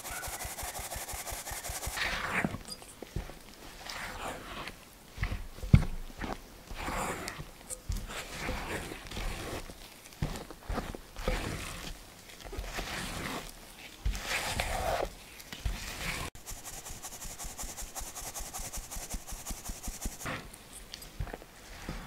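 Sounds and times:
sieve shaking rasping hiss: 0.0s - 2.5s, 16.3s - 20.4s
spatula scraping a mixing bowl: 0.0s - 2.6s, 10.7s - 11.9s, 12.6s - 15.1s.

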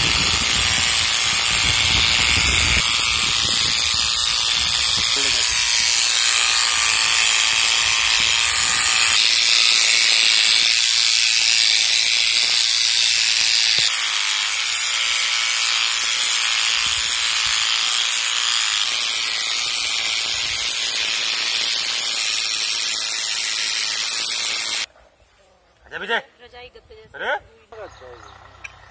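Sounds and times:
electric clippers buzzing: 0.0s - 24.9s.

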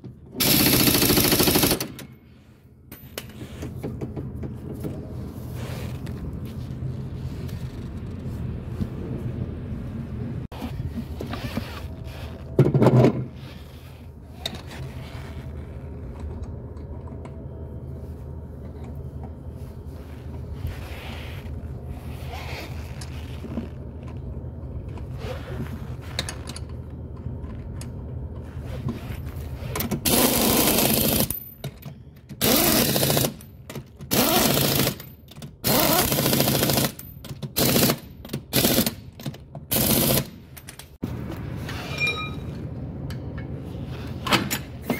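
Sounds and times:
steady low hum: 0.0s - 35.4s, 40.2s - 44.9s
impact wrench bursts: 30.0s - 31.3s, 32.4s - 33.4s, 34.1s - 39.0s, 39.7s - 40.3s.

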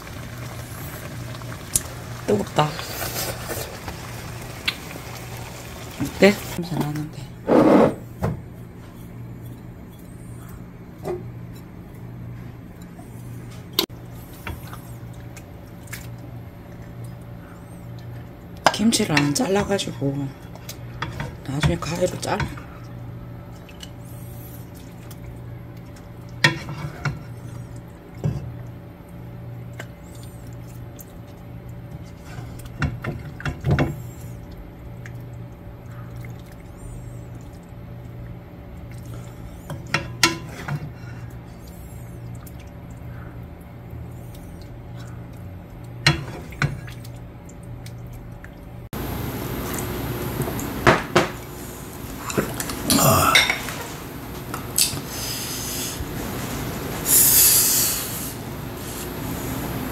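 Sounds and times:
steady low hum: 0.0s - 59.9s
wooden spoon scraping in a pot: 7.4s - 8.0s.

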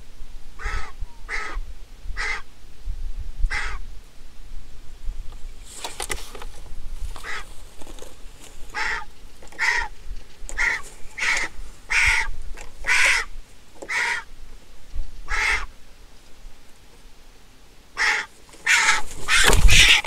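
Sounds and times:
bird giving harsh calls: 0.6s - 1.6s, 2.2s - 2.5s, 3.5s - 3.8s, 7.2s - 7.5s, 8.7s - 14.3s, 15.3s - 15.8s, 18.0s - 20.0s.

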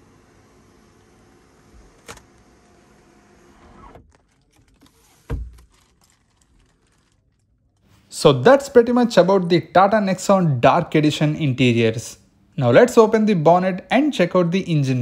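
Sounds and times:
sunroof motor running: 0.0s - 5.3s.

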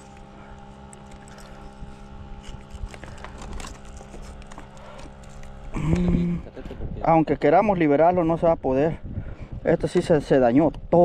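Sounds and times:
steady motor hum: 0.0s - 11.0s.

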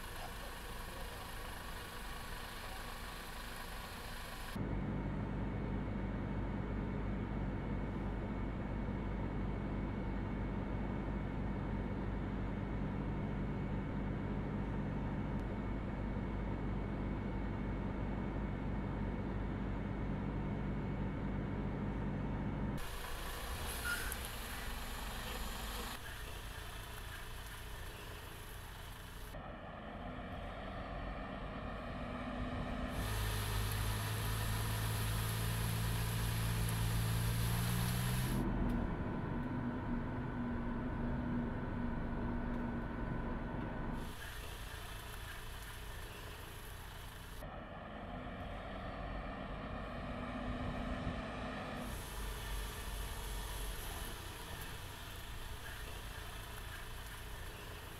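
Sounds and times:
vehicle running with low hum: 0.0s - 57.9s
heavy truck rumbling: 12.7s - 57.9s
faint steady hum: 32.9s - 38.4s.

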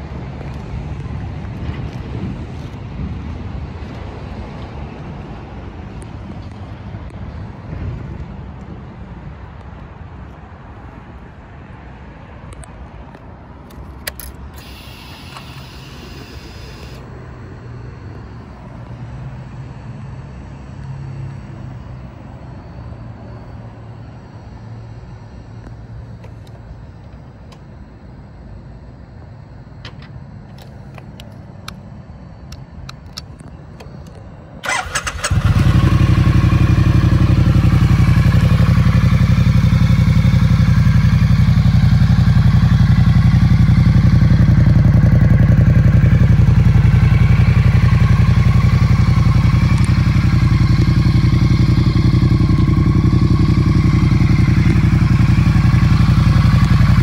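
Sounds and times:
motorcycle engine starting and idling: 13.7s - 19.0s, 32.5s - 57.0s.

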